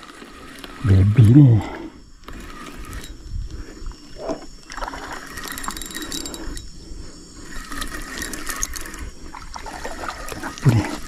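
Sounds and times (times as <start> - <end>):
water splashing: 8.8 - 11.0.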